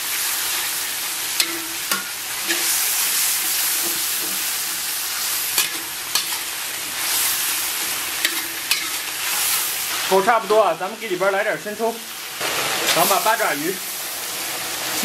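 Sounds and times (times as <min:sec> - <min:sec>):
oil sizzling in a wok: 0:00.0 - 0:15.0
spatula scraping and knocking wok: 0:00.5 - 0:10.1.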